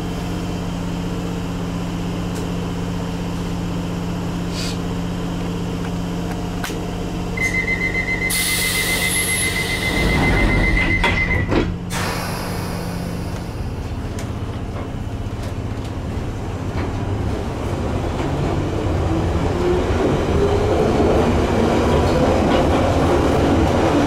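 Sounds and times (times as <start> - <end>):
train humming at platform: 0.0 - 24.0
train doors closing with hiss: 4.5 - 4.8, 8.3 - 14.0
high door warning tone: 7.4 - 13.8.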